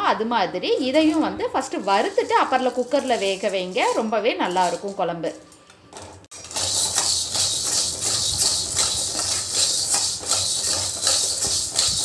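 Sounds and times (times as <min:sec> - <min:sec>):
beans rattling in a metal pan: 0:01.6 - 0:05.0, 0:06.3 - 0:12.0.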